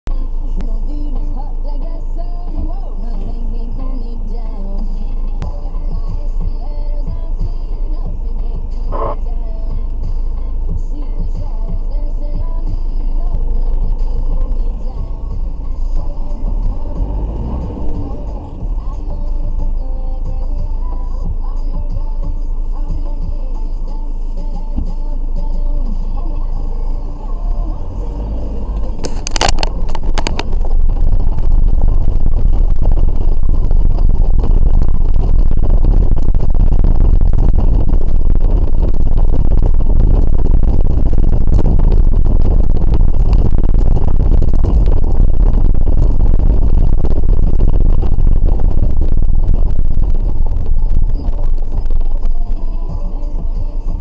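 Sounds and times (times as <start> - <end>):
car engine: 0.0 - 54.0
tyres rumbling on cobblestones: 27.3 - 54.0.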